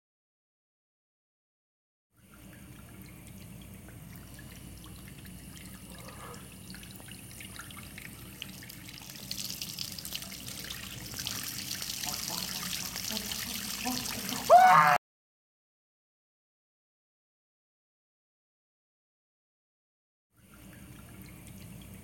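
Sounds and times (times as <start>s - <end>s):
water dripping into washbasin: 2.2s - 14.9s, 20.4s - 22.0s.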